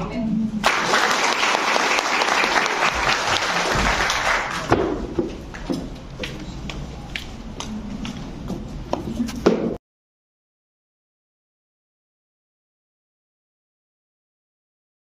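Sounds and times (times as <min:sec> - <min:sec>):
audience applauding: 0:00.6 - 0:05.7.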